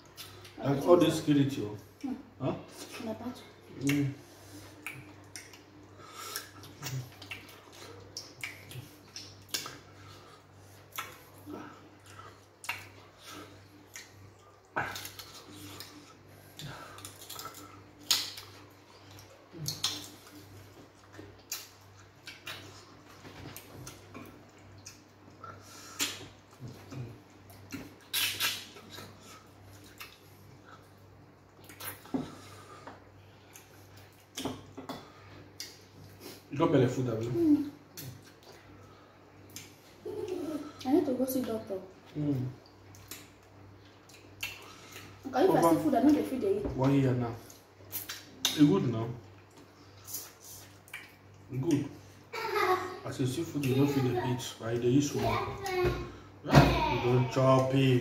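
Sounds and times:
wet eating mouth sounds: 0:03.8 - 0:36.5, 0:42.0 - 0:45.2, 0:47.4 - 0:51.9
lip smacks and chewing: 0:04.7 - 0:36.5, 0:37.8 - 0:40.8, 0:42.0 - 0:45.2, 0:47.4 - 0:51.9.

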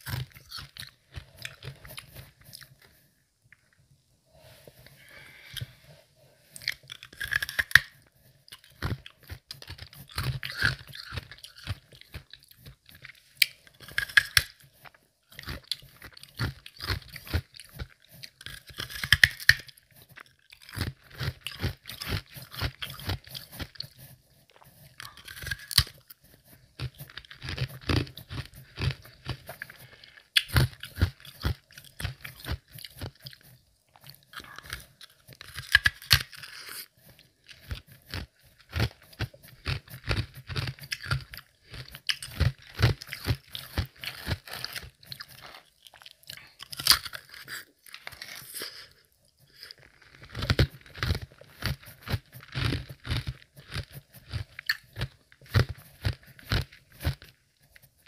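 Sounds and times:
person chewing ice: 0:00.0 - 0:03.0, 0:05.0 - 0:05.8, 0:06.5 - 0:58.0.

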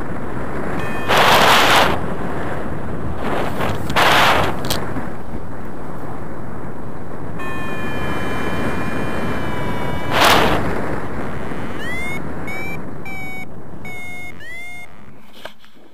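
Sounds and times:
wind rushing over microphone: 0:00.0 - 0:15.9
rising short beeps: 0:00.8 - 0:02.0, 0:07.4 - 0:15.2
variometer electronic tone: 0:00.8 - 0:02.1, 0:07.4 - 0:15.4.

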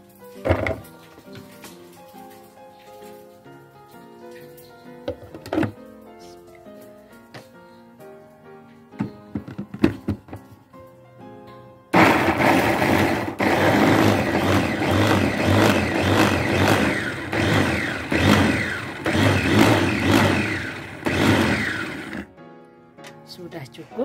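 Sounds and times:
electric food chopper grinding: 0:12.0 - 0:22.3.

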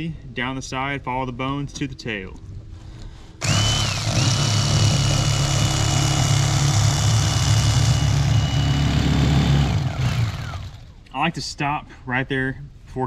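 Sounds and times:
electric fillet knife motor whining: 0:03.4 - 0:10.9.

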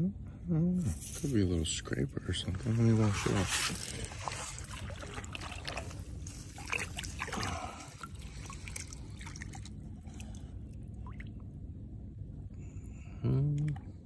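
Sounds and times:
water splashing and trickling: 0:02.4 - 0:11.5.

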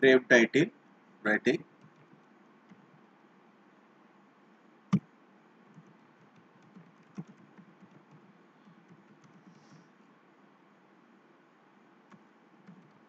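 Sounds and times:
keyboard typing: 0:01.8 - 0:02.8, 0:05.7 - 0:09.8, 0:12.6 - 0:13.0
sharp keyboard click: 0:05.7 - 0:08.2, 0:12.6 - 0:13.0.

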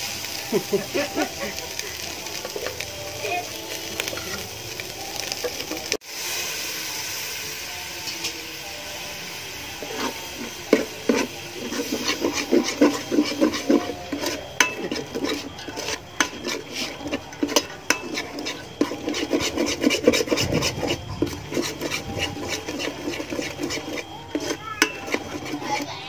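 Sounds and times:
spoon stirring in a pot: 0:09.7 - 0:26.0.

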